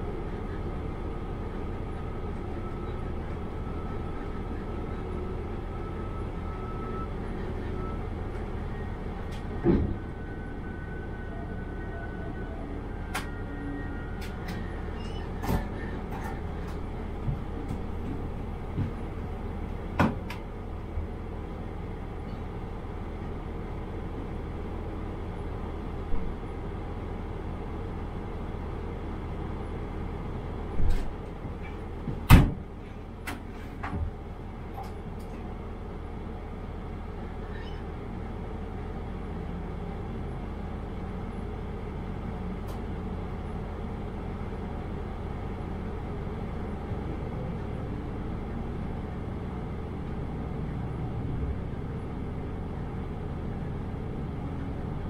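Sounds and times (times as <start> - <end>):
diesel railcar humming: 0.0 - 55.0
short knocks and clunks: 9.3 - 10.0, 19.9 - 20.4, 30.8 - 32.7.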